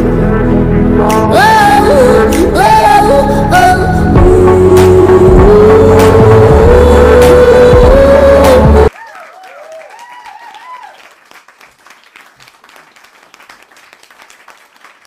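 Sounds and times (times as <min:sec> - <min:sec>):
dance-pop music: 0:00.3 - 0:08.9
high cheers: 0:08.9 - 0:11.2
audience applauding: 0:08.9 - 0:15.0.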